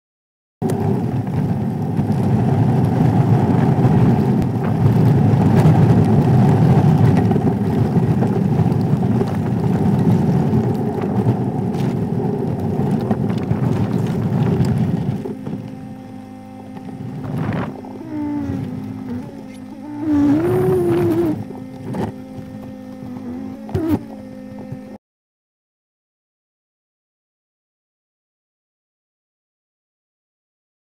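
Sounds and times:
vehicle engine and road rumble: 0.6 - 25.0.

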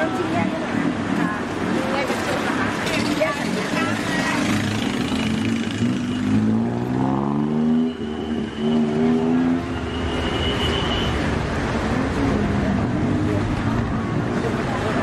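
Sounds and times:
traffic hum: 0.0 - 15.0
vehicle engine revving: 3.8 - 9.7.

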